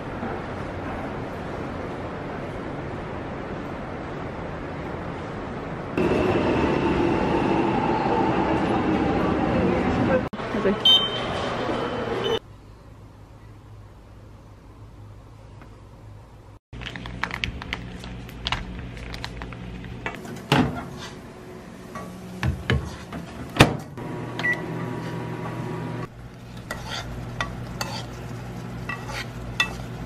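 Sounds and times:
microwave oven humming: 0:23.9 - 0:26.5
spoon stirring in a pan: 0:26.3 - 0:30.0.

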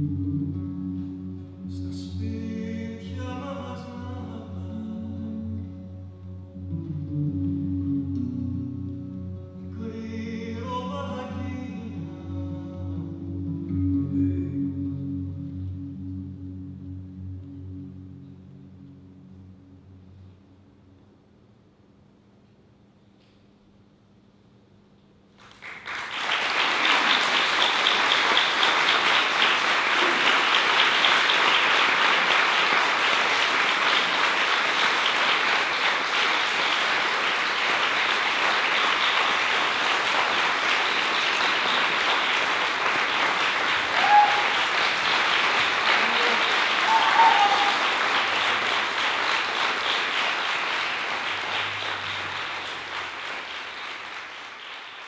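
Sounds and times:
audience applauding: 0:25.4 - 0:55.0
short cheers: 0:43.8 - 0:45.0, 0:45.8 - 0:48.4.

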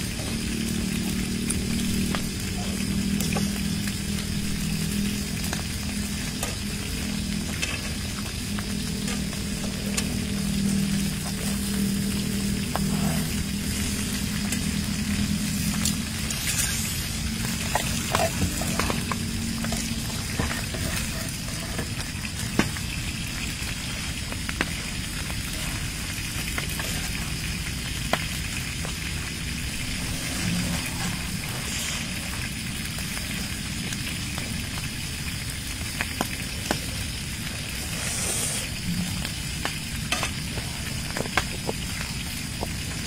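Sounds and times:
chewing grilled meat: 0:00.1 - 0:34.5.

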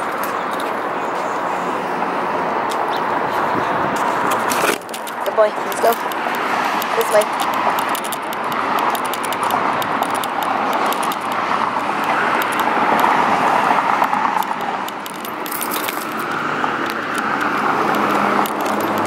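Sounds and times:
passing cars: 0:00.0 - 0:19.0
dog chain collar jangling: 0:15.1 - 0:16.4, 0:18.0 - 0:19.0.

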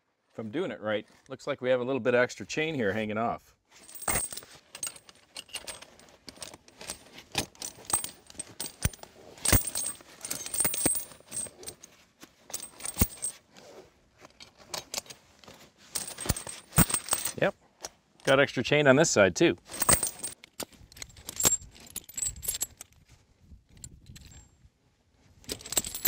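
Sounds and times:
metal chains clinking and rattling: 0:03.8 - 0:11.9, 0:12.5 - 0:13.4, 0:15.9 - 0:17.5, 0:19.7 - 0:22.9, 0:23.8 - 0:24.5, 0:25.4 - 0:26.0.

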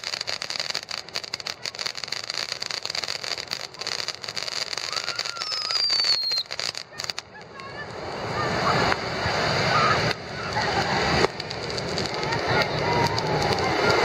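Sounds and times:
firework crackling and hissing: 0:00.0 - 0:14.0
high falling whistle: 0:04.9 - 0:06.5.

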